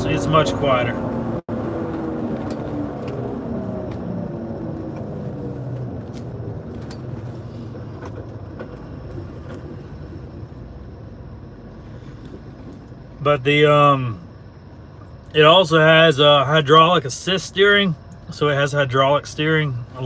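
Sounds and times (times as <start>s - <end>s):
car engine while driving: 0.0s - 20.0s
road noise inside a car: 0.0s - 20.0s.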